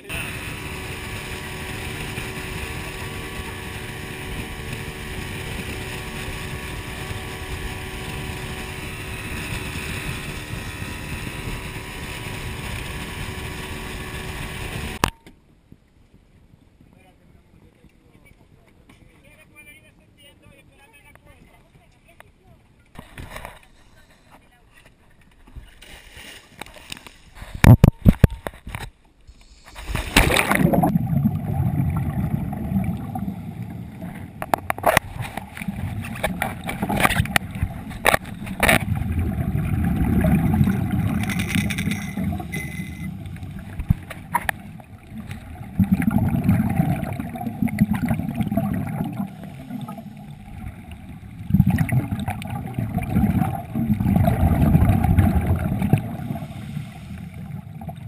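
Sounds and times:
muffled underwater rumble: 0.0 - 58.0
splashes and knocks: 29.6 - 33.2, 34.0 - 58.0
water rush going under: 29.6 - 58.0
regulator bubbles gurgling: 29.7 - 58.0.

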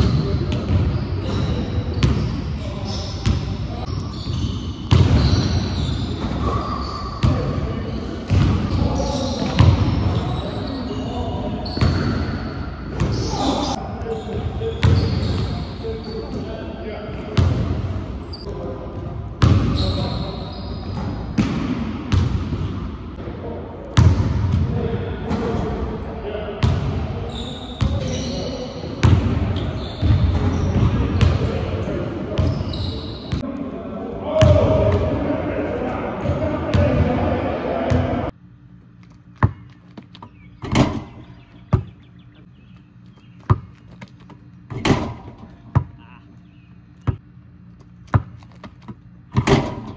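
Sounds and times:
basketball bouncing on wooden floor: 39.4 - 41.1, 42.8 - 46.0, 48.0 - 49.8.

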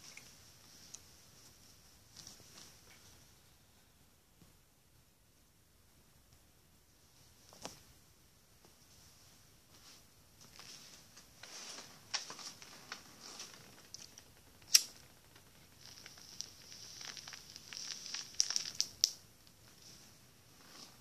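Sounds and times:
cigarette burning hiss and crackle: 12.2 - 20.0.

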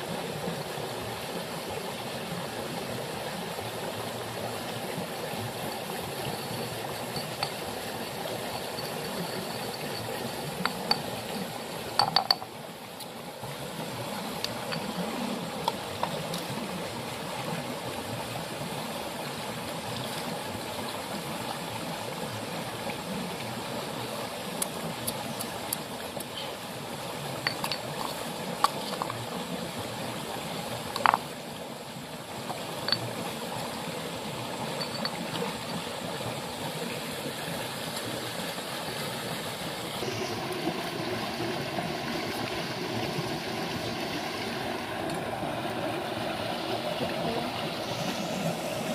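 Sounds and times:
shallow river water rushing: 0.0 - 48.9
stone clinks and knocks: 6.2 - 7.7, 8.4 - 11.1, 12.0 - 12.5, 27.4 - 29.2, 31.0 - 31.2, 34.8 - 35.2.

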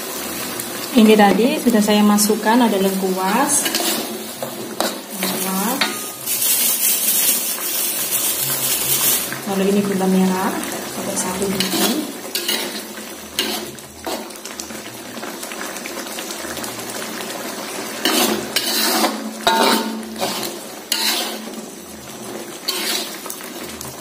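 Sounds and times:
food sizzling in a pan: 0.0 - 24.0
metal spatula scraping a wok: 2.8 - 9.4, 11.1 - 14.3, 18.0 - 23.6.

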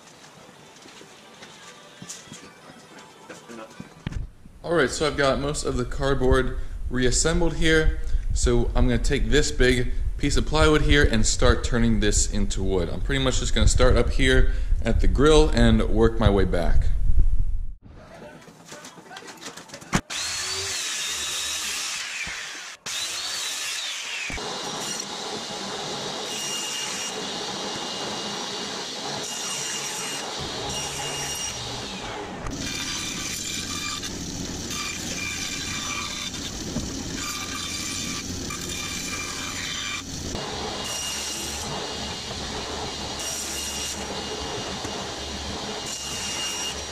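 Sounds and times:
band saw: 20.0 - 46.9
table saw cutting: 20.0 - 46.9.

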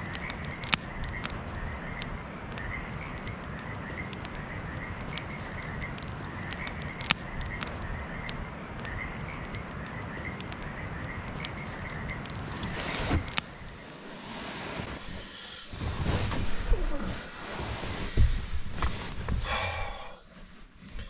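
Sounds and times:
frogs croaking: 0.0 - 14.2
campfire crackling and popping: 0.0 - 21.0.

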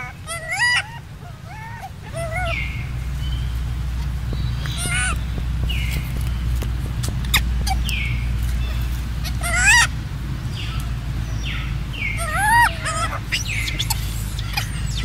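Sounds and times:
macaque squeals: 0.0 - 3.0, 4.6 - 6.2, 7.0 - 10.0, 12.1 - 15.0
monkey chirps: 0.0 - 3.6, 4.3 - 15.0
steady low hum: 0.0 - 15.0.

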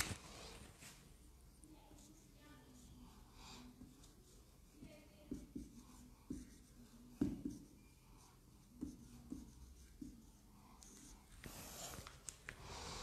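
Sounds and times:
handwriting on paper: 1.9 - 12.1
soft knocks of writing tool: 3.7 - 7.8, 8.7 - 11.5.

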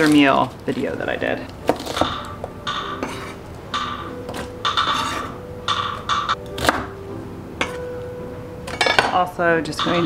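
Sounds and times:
knife scraping cutting board: 3.0 - 3.4, 4.8 - 5.4.

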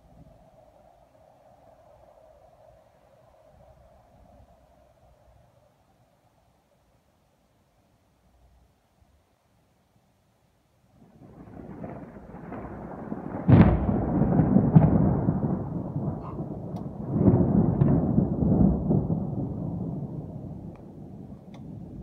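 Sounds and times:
thunder crack and rumble: 11.0 - 22.0.

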